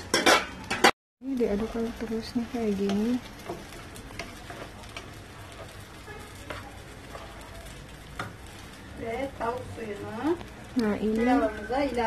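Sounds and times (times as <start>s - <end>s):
grains sizzling in oil: 0.0s - 12.0s
wooden spoon scraping and tapping: 2.7s - 8.6s.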